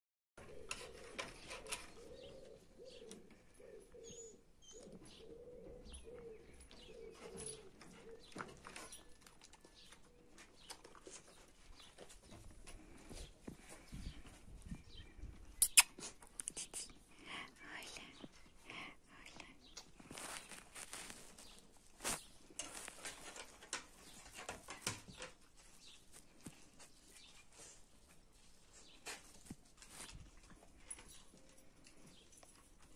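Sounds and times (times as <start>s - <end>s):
dove cooing: 0.4s - 8.4s
paws clicking on wooden boards: 6.4s - 13.9s, 22.5s - 26.9s
dog mouthing sounds: 15.6s - 16.9s.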